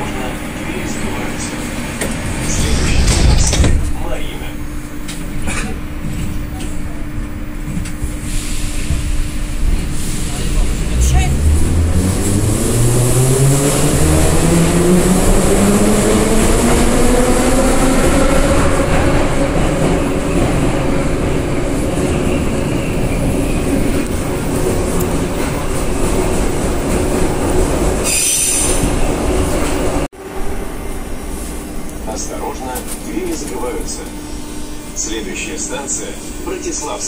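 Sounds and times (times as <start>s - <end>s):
train rumbling: 0.0s - 37.0s
brief high squeal: 28.0s - 28.8s.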